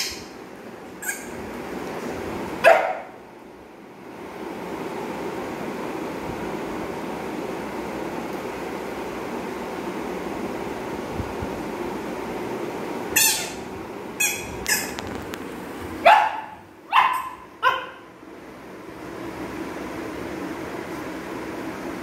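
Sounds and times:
puppy yipping and barking: 0:00.0 - 0:00.3, 0:01.0 - 0:01.4, 0:02.6 - 0:03.1, 0:13.2 - 0:15.0, 0:16.0 - 0:18.1.

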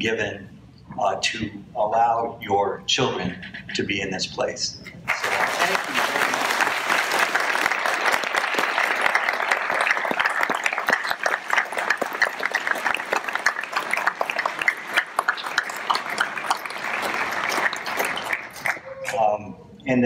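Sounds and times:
audience applauding: 0:05.1 - 0:19.2.

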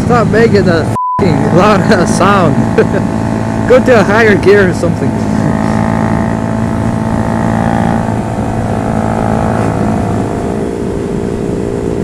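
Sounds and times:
motorcycle engine running: 0:00.0 - 0:12.0
wind rush: 0:04.9 - 0:12.0.

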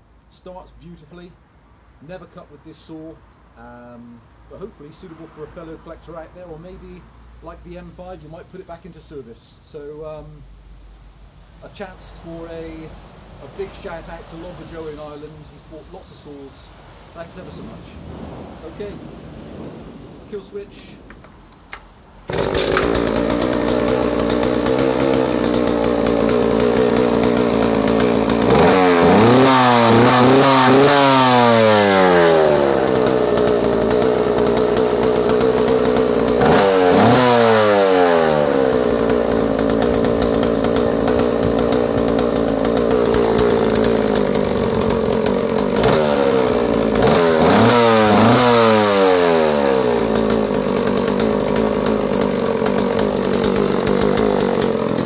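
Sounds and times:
chainsaw engine revving: 0:22.2 - 0:55.0.

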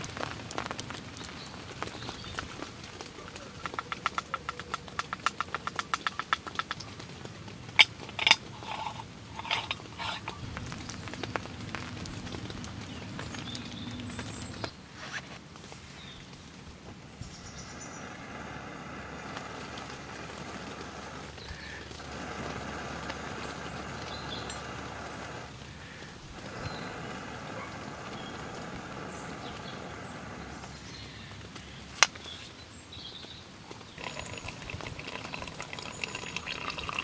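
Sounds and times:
sharp knocks and taps: 0:03.6 - 0:06.9
moka pot hissing: 0:07.7 - 0:11.4, 0:17.4 - 0:30.8, 0:34.0 - 0:37.0.

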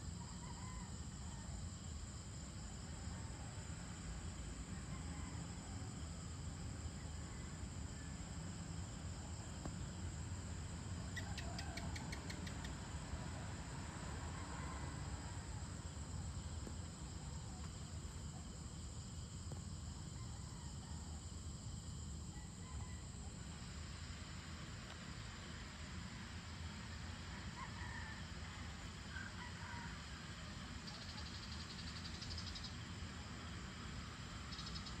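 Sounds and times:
high insect drone: 0:00.0 - 0:35.0
distant rooster crowing: 0:00.1 - 0:01.8, 0:04.6 - 0:06.3, 0:11.0 - 0:12.7, 0:14.0 - 0:16.8, 0:20.0 - 0:21.6, 0:22.2 - 0:23.6, 0:26.8 - 0:31.4
sharp clicking chirps: 0:11.2 - 0:12.8.

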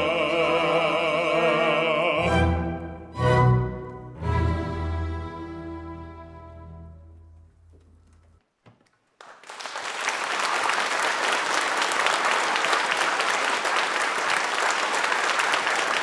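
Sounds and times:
audience applauding: 0:09.0 - 0:16.0.

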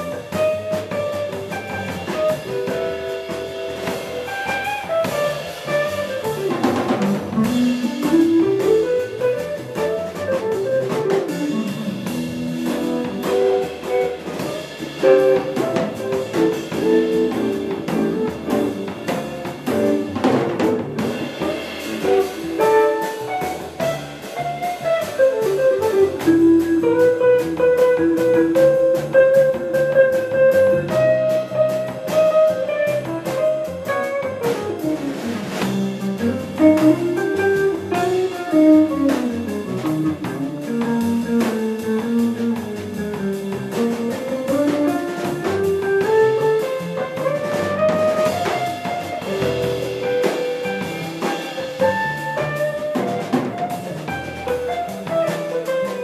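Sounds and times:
electric guitar melody: 0:00.0 - 0:43.2, 0:43.9 - 0:56.0.

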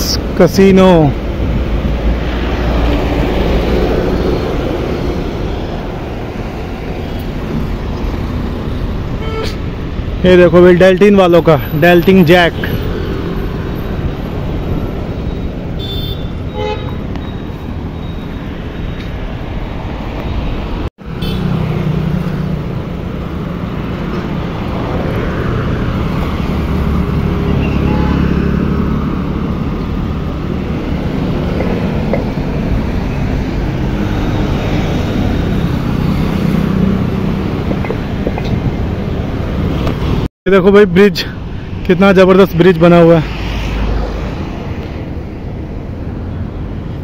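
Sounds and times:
city road traffic: 0:00.0 - 0:47.0
car horn toot: 0:09.2 - 0:09.6, 0:15.8 - 0:17.0, 0:21.2 - 0:21.5, 0:27.5 - 0:28.3.

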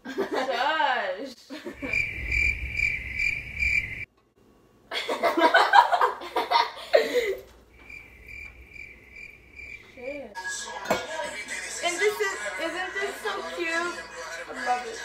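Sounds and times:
cricket chirping: 0:01.8 - 0:04.1, 0:07.7 - 0:10.3
people laughing: 0:04.9 - 0:07.5
voices: 0:09.8 - 0:15.0.

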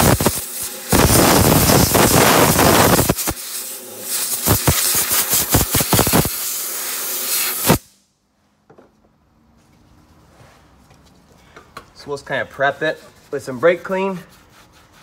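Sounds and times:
compressed air blow gun blasts: 0:00.0 - 0:08.0.

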